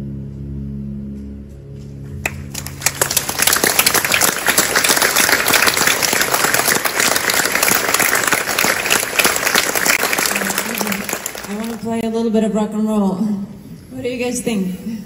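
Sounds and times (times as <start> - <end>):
audience applauding: 2.2 - 12.0.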